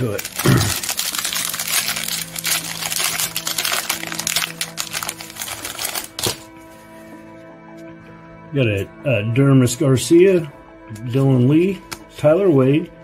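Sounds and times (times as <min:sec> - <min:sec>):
plastic wrapper crinkling and tearing: 0:00.0 - 0:06.6
faint background music: 0:00.0 - 0:13.0.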